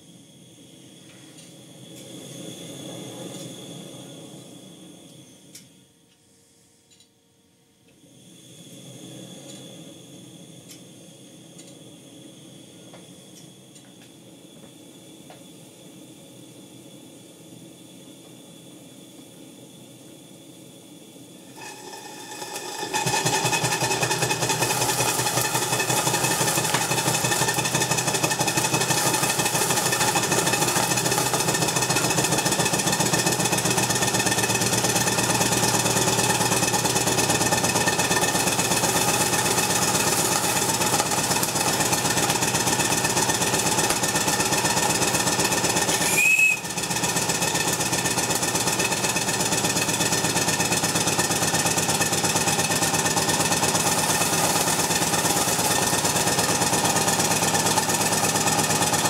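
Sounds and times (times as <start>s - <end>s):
steam engine model running: 21.4s - 59.0s
sharp squeak: 46.0s - 46.6s.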